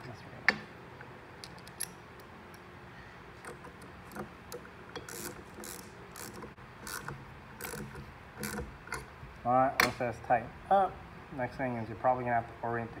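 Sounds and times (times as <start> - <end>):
hand ratchet clicking: 3.4 - 9.1.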